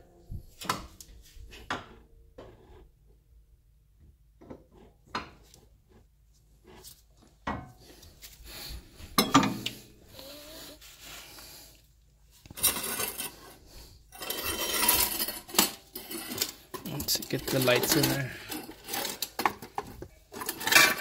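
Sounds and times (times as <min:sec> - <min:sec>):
scraping and handling noise: 0:04.4 - 0:21.0
metal clinks of car parts and tools: 0:09.2 - 0:09.7.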